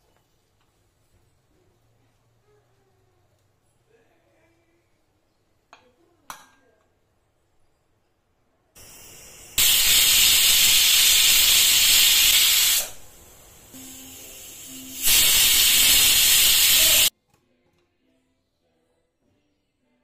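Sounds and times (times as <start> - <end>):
soft hiss of escaping steam: 8.8 - 17.1
pressure cooker whistle: 9.6 - 13.0, 13.8 - 17.1.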